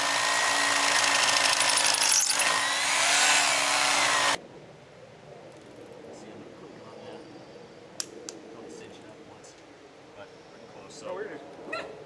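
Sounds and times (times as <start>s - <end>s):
hammer drill boring into concrete: 0.0s - 4.4s.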